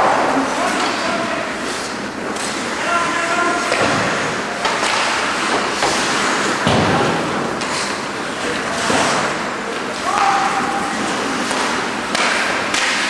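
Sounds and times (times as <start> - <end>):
skates scraping ice: 0.1 - 13.0
sticks and puck knocking: 11.4 - 13.0.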